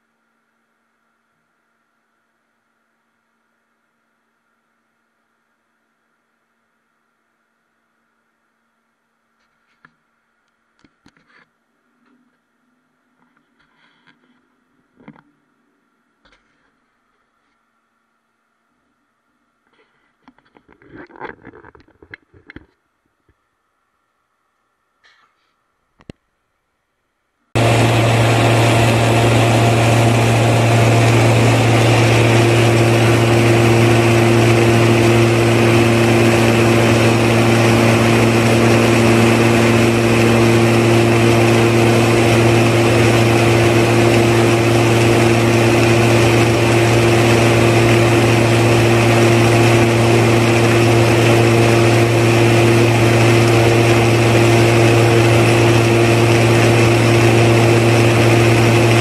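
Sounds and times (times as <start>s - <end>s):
higher steady tone: 27.6s - 59.0s
motor running with low hum: 27.6s - 59.0s.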